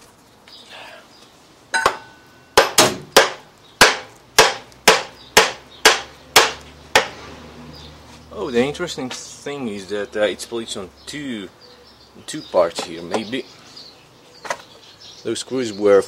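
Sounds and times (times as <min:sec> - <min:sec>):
hammer striking metal: 0:01.8 - 0:07.2.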